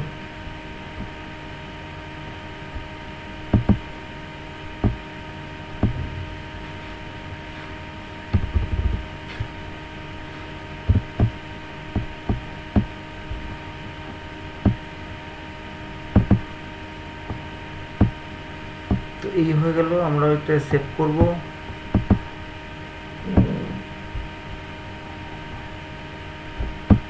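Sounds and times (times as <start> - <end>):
steady electrical hum: 0.0 - 27.0
dull low thumps: 2.7 - 4.0, 4.7 - 7.4, 8.2 - 9.7, 10.8 - 13.7, 14.6 - 15.0, 16.0 - 16.6, 17.2 - 19.2, 21.2 - 22.4, 23.2 - 25.8, 26.5 - 27.0.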